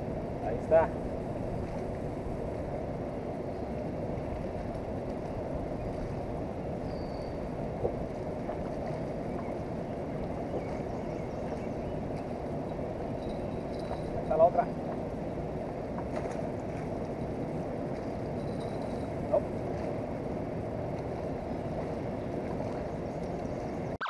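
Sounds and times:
flowing river: 0.0 - 23.8
wind: 0.0 - 24.0.

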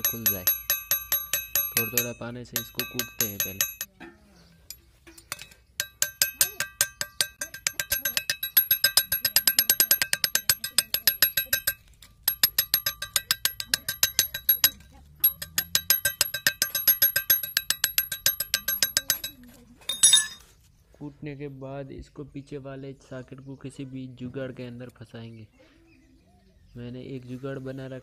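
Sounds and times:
spanner tapping metal nozzle: 0.0 - 3.9, 4.7 - 20.2.

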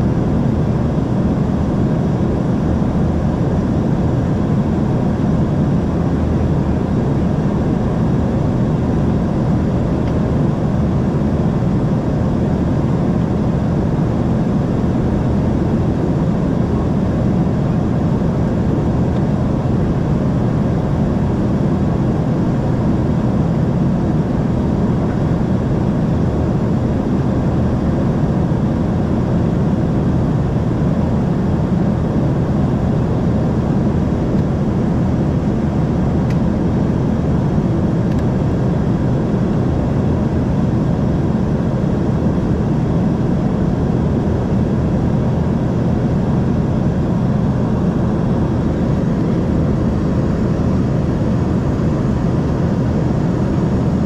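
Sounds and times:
jet engines droning: 0.0 - 54.0.

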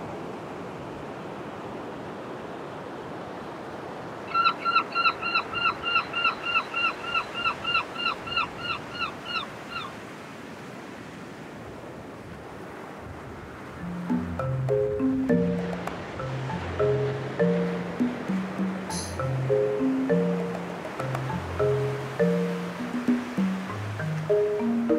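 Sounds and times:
surf wash: 0.0 - 24.9
bird calling in fast notes: 4.3 - 9.9.

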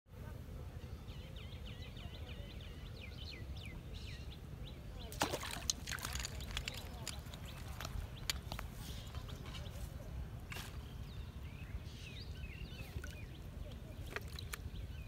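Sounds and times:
fish splashing in water: 5.1 - 8.2.

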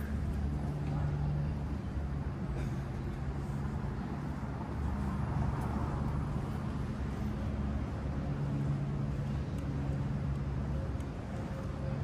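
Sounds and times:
low mechanical city drone: 0.0 - 12.0.

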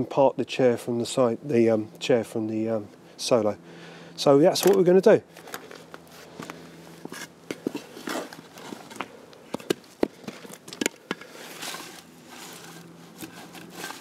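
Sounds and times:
footsteps on gravel and leaves: 5.3 - 14.0.

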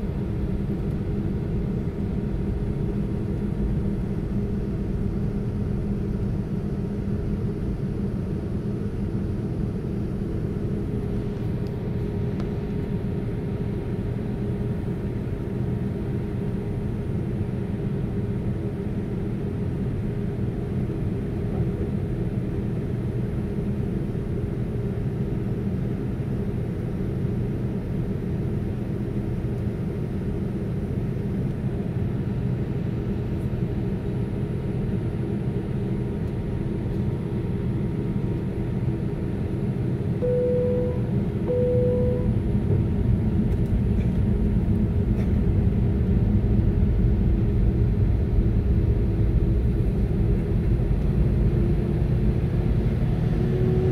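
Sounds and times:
aircraft cabin engine hum: 0.0 - 53.9
faint engine whine: 0.0 - 53.9.

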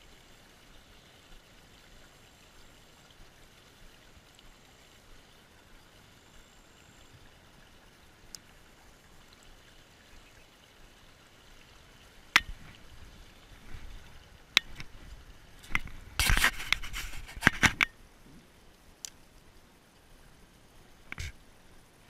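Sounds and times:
stream water hiss: 0.0 - 22.0
sharp clicks and knocks: 12.3 - 12.6.

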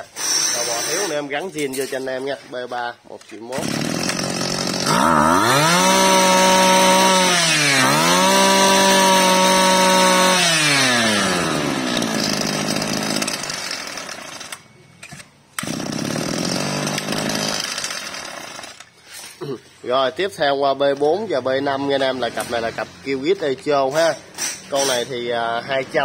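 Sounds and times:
brush-cutter engine revving and idling: 3.5 - 14.6, 15.6 - 18.8.

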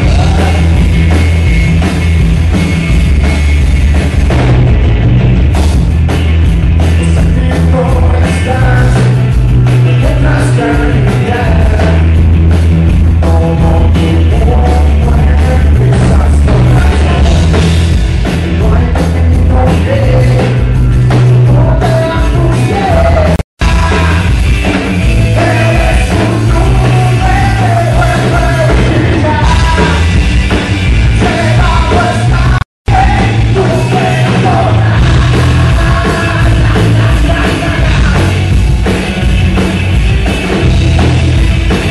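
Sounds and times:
live rock band playing: 0.0 - 41.9
man singing into microphone: 7.0 - 9.2, 9.9 - 12.1, 13.2 - 17.4, 18.5 - 20.6, 21.4 - 24.3, 25.3 - 30.1, 31.2 - 38.3.

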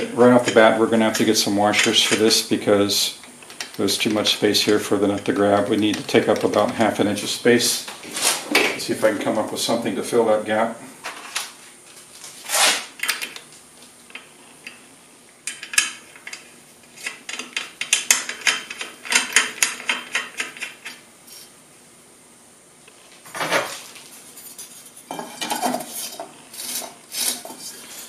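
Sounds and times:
metal hardware clinking: 3.4 - 7.0.

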